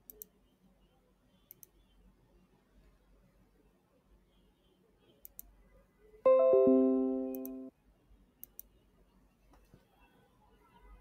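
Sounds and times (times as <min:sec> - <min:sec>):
faint mouse clicks: 0:00.0 - 0:00.4, 0:01.4 - 0:02.0, 0:05.2 - 0:05.6, 0:07.3 - 0:07.6, 0:08.4 - 0:08.8
notification chime: 0:06.3 - 0:07.7.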